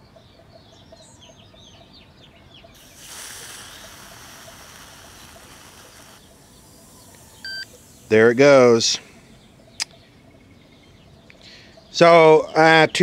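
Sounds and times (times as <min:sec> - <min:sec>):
small birds chirping: 0:00.0 - 0:13.0
aerosol spray hissing: 0:02.8 - 0:08.9.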